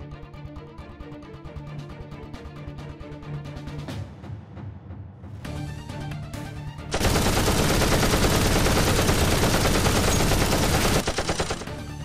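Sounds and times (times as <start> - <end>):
background music: 0.0 - 12.0
machine-gun fire: 6.9 - 11.8.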